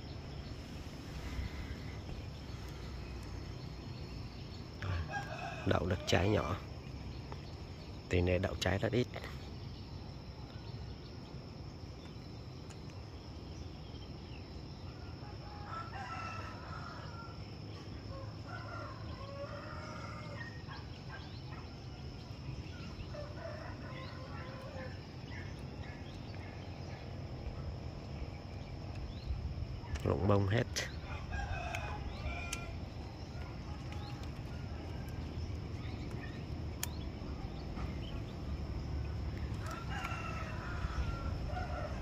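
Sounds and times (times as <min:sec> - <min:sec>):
rooster crowing: 0:04.8 - 0:06.6, 0:15.1 - 0:17.5, 0:18.1 - 0:20.8, 0:23.1 - 0:25.0, 0:31.0 - 0:32.9, 0:39.5 - 0:42.0.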